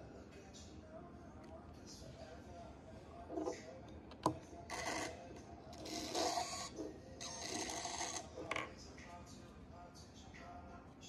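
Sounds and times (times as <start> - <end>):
small electric motors whirring: 5.8 - 8.3.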